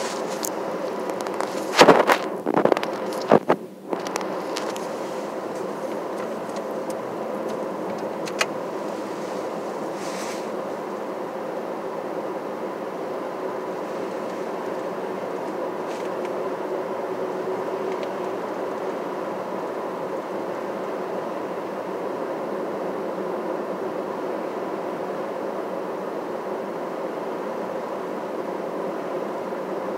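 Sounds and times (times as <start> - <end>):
car engine and tyre hum: 0.0 - 11.3, 13.0 - 21.5.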